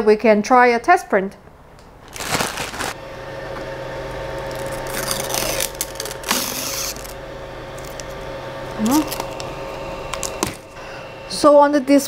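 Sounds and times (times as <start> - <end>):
handling noises: 2.0 - 3.0
plastic rustling: 2.0 - 3.0
printer humming: 2.9 - 12.0.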